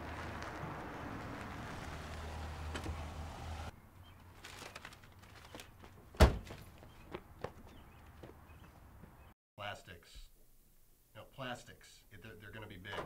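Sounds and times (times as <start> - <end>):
car door slamming: 6.2 - 6.5.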